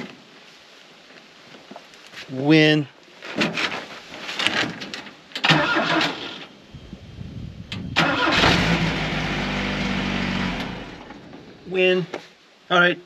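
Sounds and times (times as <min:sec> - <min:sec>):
starter cranking engine: 0:07.8 - 0:10.9.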